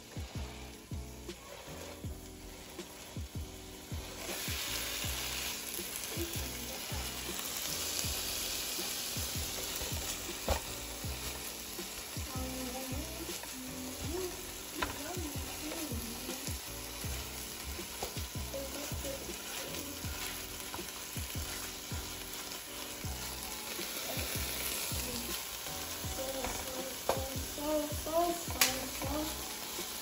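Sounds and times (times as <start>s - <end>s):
spatula scraping a pan: 0.0s - 3.2s
meat sizzling in a frying pan: 0.0s - 30.0s.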